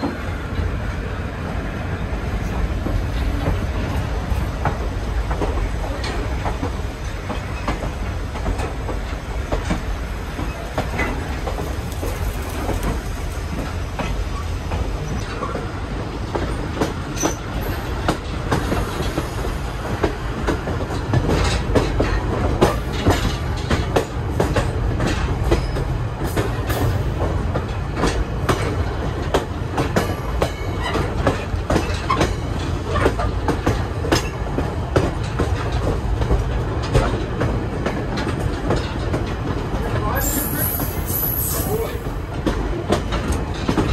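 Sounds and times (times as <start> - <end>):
train car rumbling on track: 0.0 - 43.9.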